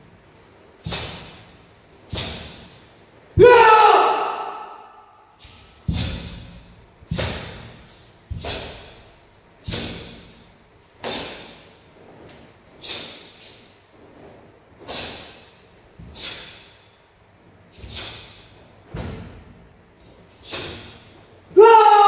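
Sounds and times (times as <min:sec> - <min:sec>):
sharp forceful breaths: 0:00.8 - 0:03.0, 0:05.2 - 0:11.9, 0:12.7 - 0:18.8, 0:20.0 - 0:21.3.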